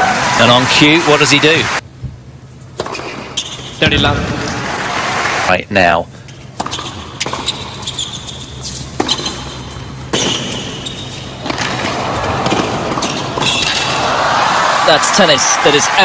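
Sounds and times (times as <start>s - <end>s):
shoes squeaking on court: 2.5s - 3.8s, 6.5s - 13.9s
racquet striking tennis ball: 2.8s - 3.7s, 6.6s - 7.9s, 8.7s - 14.0s
crowd noise: 11.7s - 16.0s.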